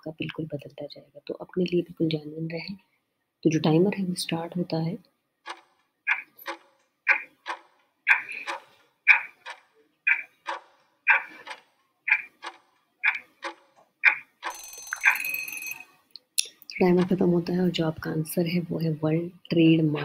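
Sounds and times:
clock ticking: 0:05.4 - 0:17.5
alarm: 0:14.0 - 0:15.9.

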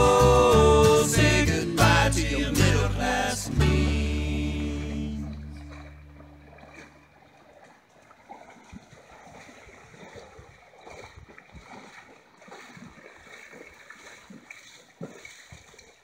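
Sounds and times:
horses splashing in water: 0:04.5 - 0:16.0.

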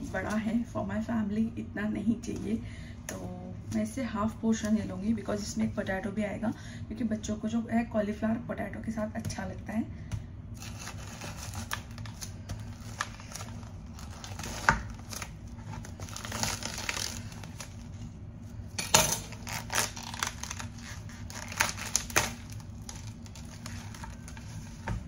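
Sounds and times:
low steady hum: 0:00.0 - 0:25.0
cauliflower snapping and cracking: 0:10.6 - 0:17.9, 0:18.8 - 0:24.3
crinkling rustling handling: 0:10.6 - 0:25.0.

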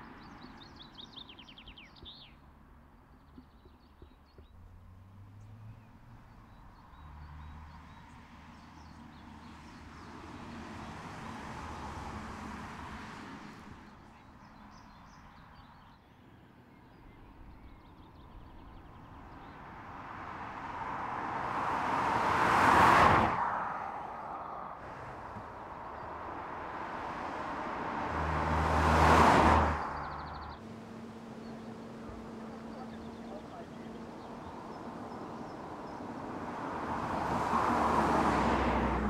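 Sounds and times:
car driving past: 0:09.6 - 0:13.9, 0:19.1 - 0:39.0.

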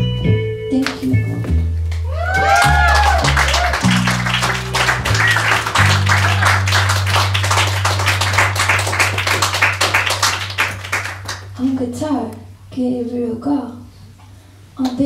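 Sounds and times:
bass playing low notes: 0:00.0 - 0:12.1
audience applause: 0:02.1 - 0:11.6.

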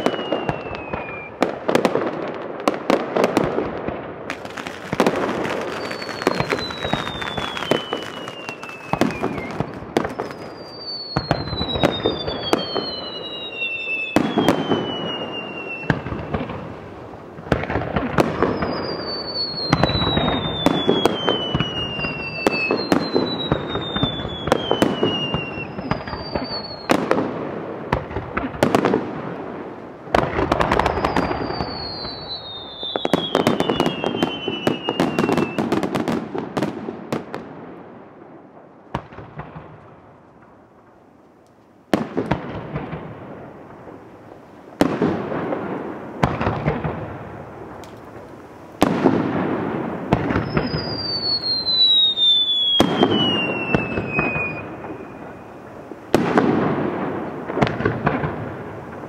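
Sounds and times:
falling firework whistles: 0:00.0 - 0:01.8, 0:04.3 - 0:16.8, 0:17.5 - 0:27.2, 0:30.1 - 0:36.7, 0:46.2 - 0:59.0
firework shells bursting: 0:04.3 - 0:27.1.

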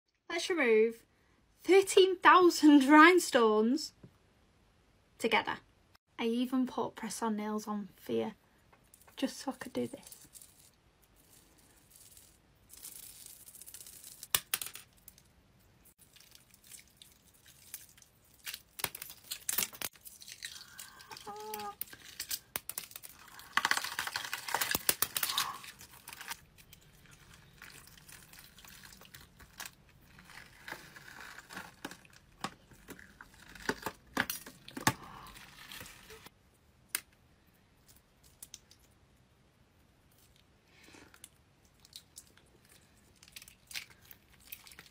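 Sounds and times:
latex peeling with sticky tearing: 0:16.0 - 0:36.3.

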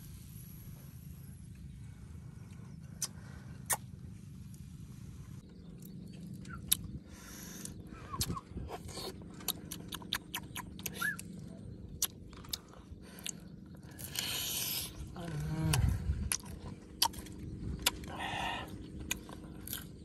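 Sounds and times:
wet mouth clicks and smacks: 0:07.6 - 0:11.3.

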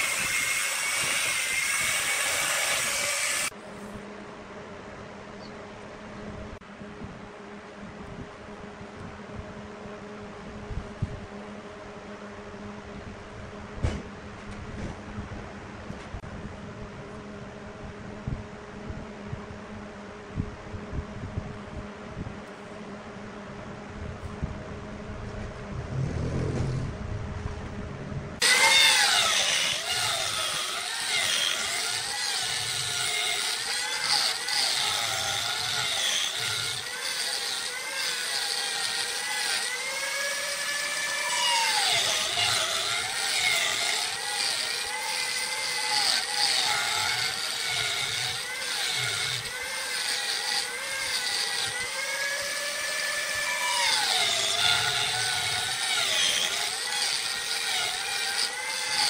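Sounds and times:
wood lathe motor whine: 0:00.0 - 0:03.6, 0:28.4 - 0:59.0
low rumble: 0:23.8 - 0:28.4.

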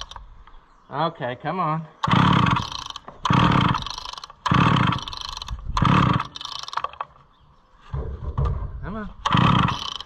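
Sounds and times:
chainsaw starter cord pulled: 0:00.0 - 0:00.2, 0:02.0 - 0:07.2, 0:09.2 - 0:10.0.

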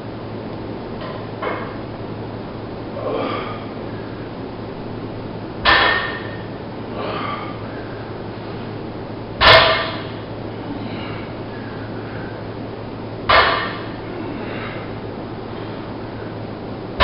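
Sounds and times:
steady hum: 0:00.0 - 0:17.0
barbell metallic clank: 0:05.6 - 0:06.5, 0:09.4 - 0:10.2, 0:13.3 - 0:14.0
person breathing: 0:10.7 - 0:12.5, 0:14.2 - 0:15.9.

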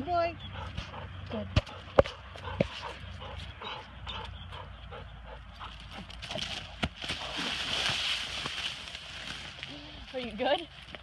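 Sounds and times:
footsteps through dry leaves: 0:06.3 - 0:11.0.

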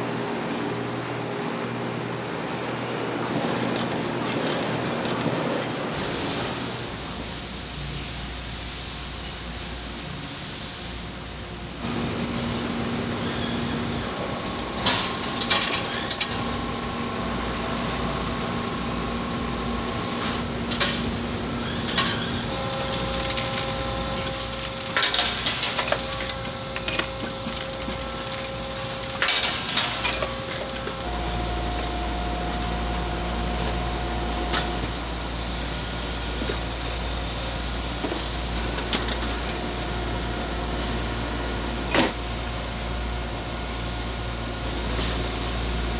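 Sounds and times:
factory machinery humming: 0:00.0 - 0:45.9
metal parts clanking: 0:21.9 - 0:31.1.

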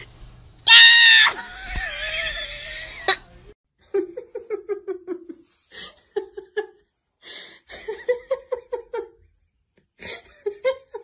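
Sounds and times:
person laughing: 0:01.2 - 0:06.8.

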